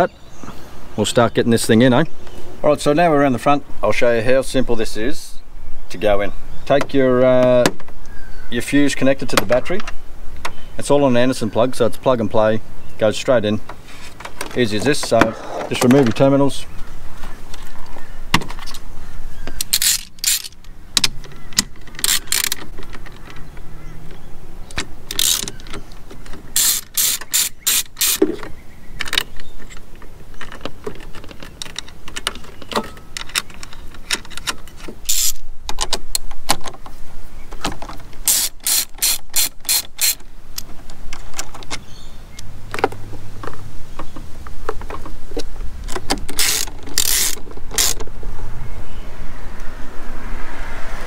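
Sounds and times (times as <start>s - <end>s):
socket ratchet clicking: 19.6s - 23.2s, 24.7s - 25.8s, 26.5s - 28.2s, 33.1s - 36.3s, 38.2s - 40.2s, 45.9s - 48.1s.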